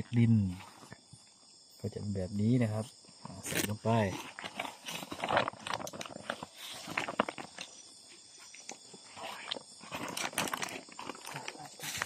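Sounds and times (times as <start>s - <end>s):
plastic sack rustling: 4.2s - 7.7s, 9.2s - 12.0s.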